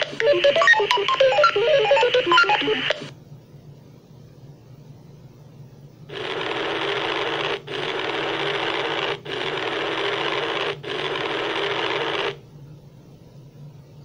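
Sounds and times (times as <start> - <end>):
harsh electric buzzing: 6.1 - 12.4.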